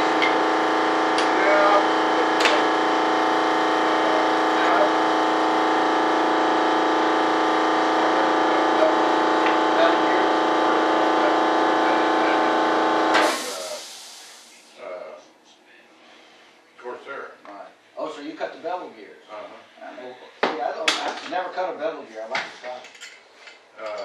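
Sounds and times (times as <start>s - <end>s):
machine humming: 0.0s - 14.9s
hiss: 13.2s - 14.7s.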